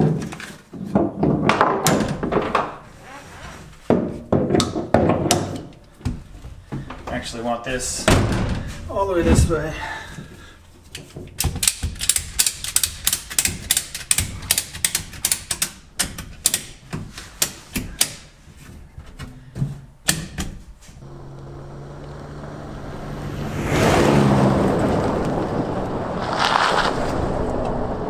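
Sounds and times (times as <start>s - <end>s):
ratchet strap clicking: 11.4s - 15.8s
tyre noise on dirt road: 20.9s - 28.0s
pickup engine hum: 21.0s - 28.0s.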